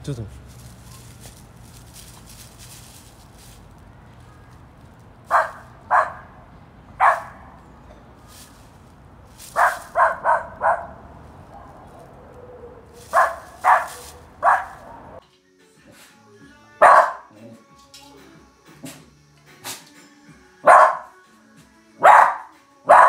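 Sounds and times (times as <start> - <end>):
dog barking sharply: 5.3 - 6.4, 7.0 - 7.6, 9.6 - 12.1, 13.1 - 15.1, 16.8 - 17.3, 20.6 - 21.1, 22.0 - 23.0.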